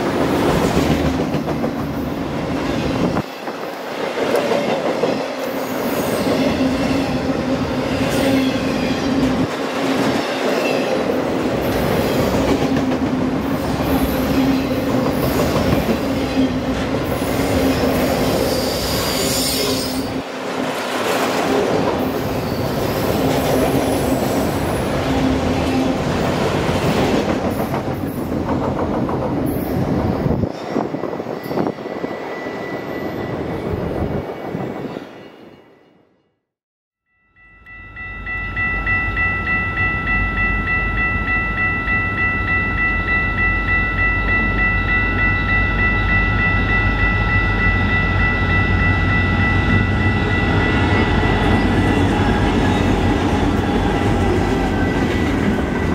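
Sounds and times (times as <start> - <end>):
high wheel squeal: 18.4 - 20.2.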